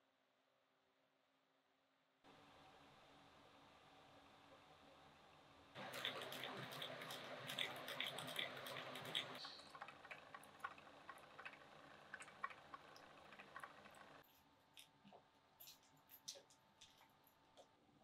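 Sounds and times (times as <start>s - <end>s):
sharp ticks and clicks: 5.8s - 14.2s
crackling and clicking: 5.8s - 17.8s.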